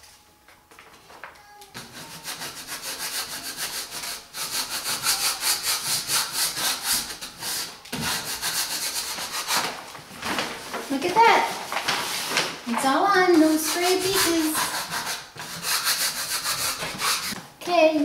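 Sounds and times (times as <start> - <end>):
rubbing strokes over paper tape: 1.8 - 12.5, 13.3 - 17.4.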